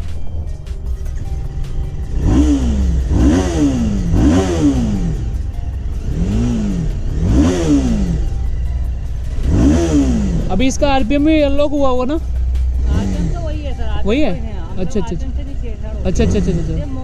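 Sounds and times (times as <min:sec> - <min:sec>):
motorcycle engine idling: 0:00.0 - 0:17.0
motorcycle engine revving: 0:00.0 - 0:17.0.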